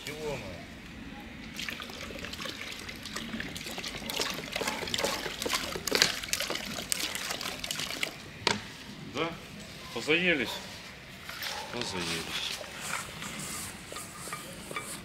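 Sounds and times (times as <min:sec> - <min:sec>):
water splashing in a dish: 0:01.5 - 0:08.2.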